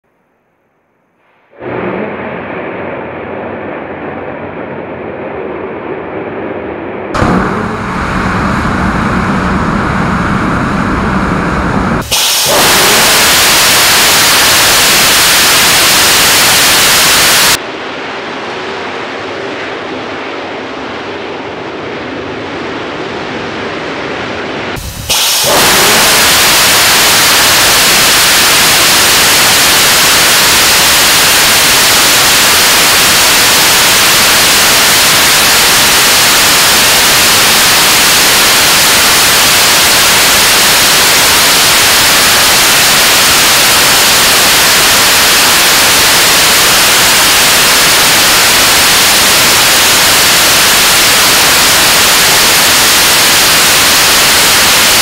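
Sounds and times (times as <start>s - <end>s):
rocket engine firing: 1.6s - 55.0s.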